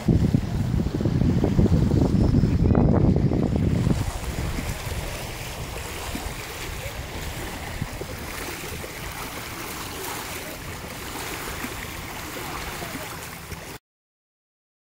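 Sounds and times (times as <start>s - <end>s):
steady low rumble: 0.0s - 12.2s
waves lapping on pebbles: 3.4s - 13.8s.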